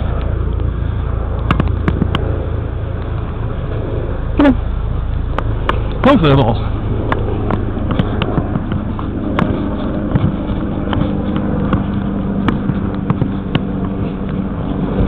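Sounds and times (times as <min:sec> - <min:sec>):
helicopter droning overhead: 0:00.0 - 0:15.0
low rumble: 0:00.0 - 0:15.0
footsteps knocking: 0:07.4 - 0:14.4.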